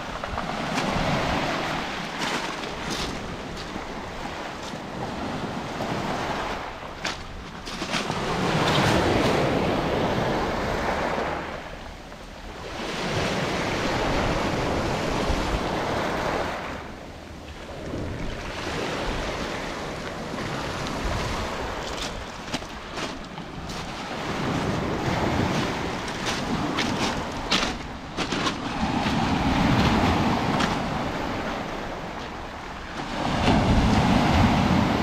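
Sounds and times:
waves washing over pebbles: 0.0 - 11.8, 17.6 - 35.0.

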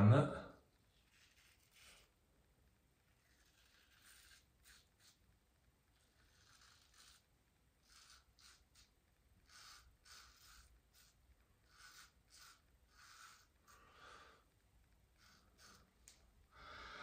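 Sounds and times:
shaving brush swishing lather: 9.5 - 13.8.

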